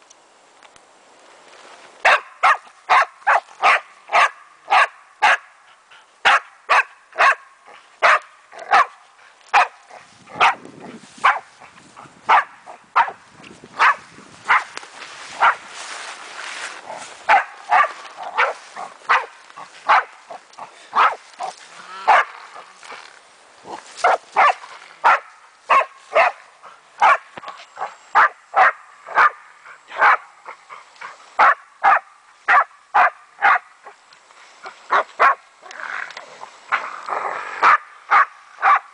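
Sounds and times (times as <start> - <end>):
dog barking: 2.0 - 5.5, 6.2 - 7.4, 8.0 - 9.8, 10.4 - 10.6, 11.2 - 11.5, 12.3 - 13.2, 13.8 - 14.7, 15.4 - 15.6, 17.3 - 20.1, 20.9 - 21.5, 22.1 - 22.3, 24.0 - 26.4, 27.0 - 30.3, 31.4 - 33.7, 34.9 - 35.4, 37.6 - 38.9.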